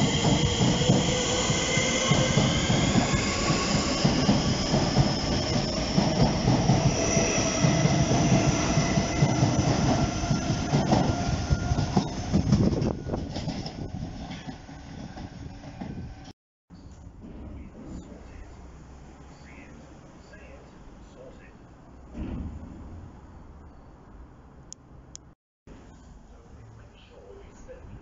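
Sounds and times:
high train whine: 0.0s - 16.3s
train wheels rumbling on rails: 0.0s - 16.3s, 17.0s - 20.5s.

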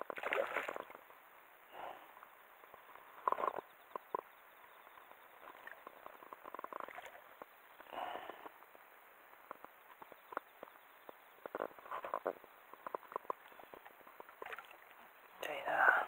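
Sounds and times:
small clicks and taps: 9.4s - 14.3s.

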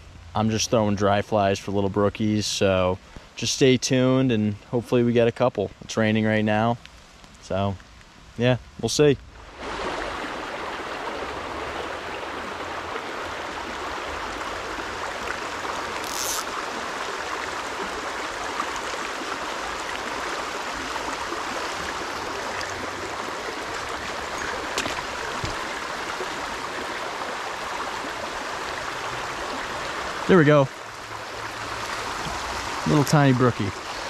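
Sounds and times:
brook running over stones: 6.8s - 34.0s
brief high hiss: 16.0s - 16.5s.

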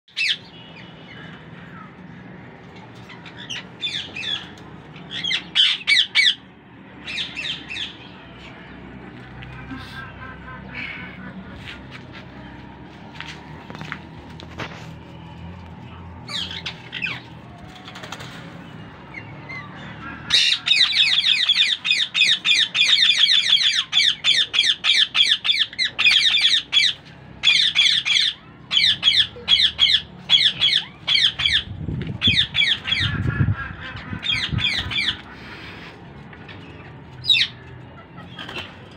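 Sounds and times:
parakeets squawking: 0.1s - 8.8s, 16.3s - 17.4s, 18.2s - 36.0s, 36.6s - 38.9s.

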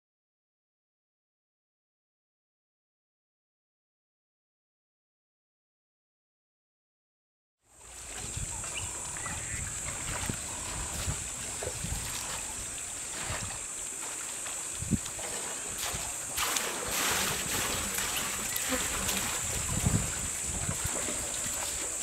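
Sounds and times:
water sloshing and splashing: 7.7s - 22.0s.

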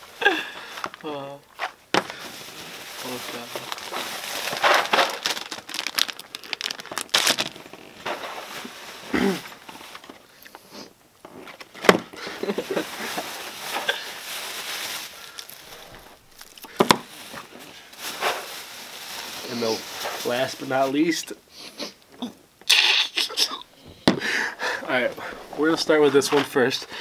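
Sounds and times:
snack packages rustling: 0.0s - 10.7s, 11.4s - 21.3s, 24.3s - 27.0s.

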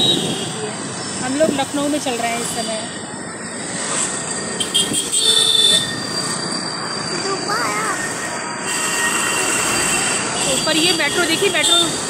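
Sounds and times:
metro train running overhead: 0.0s - 12.0s
street traffic rushing: 0.0s - 12.0s.

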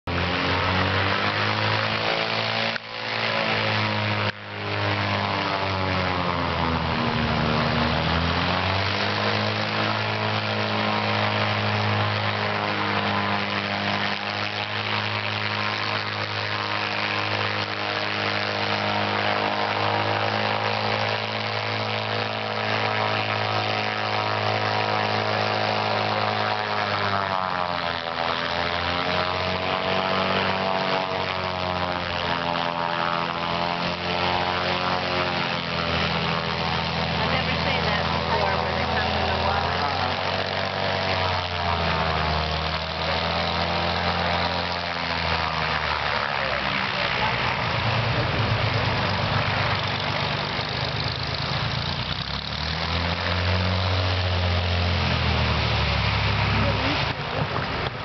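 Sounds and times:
propeller engine running: 0.0s - 58.0s.

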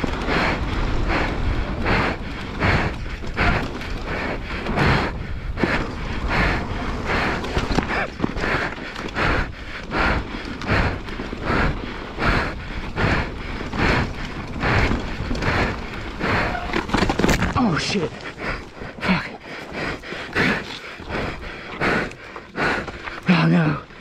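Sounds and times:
person breathing hard: 0.0s - 24.0s
tyres rolling on dirt trail: 0.0s - 24.0s.

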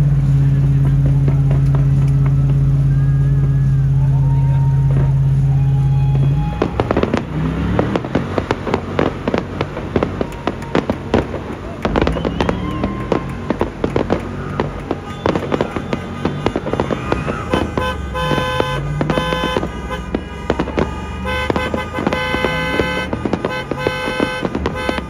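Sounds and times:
fireworks bangs and crackles: 0.0s - 25.0s
car horn honking: 0.6s - 25.0s.

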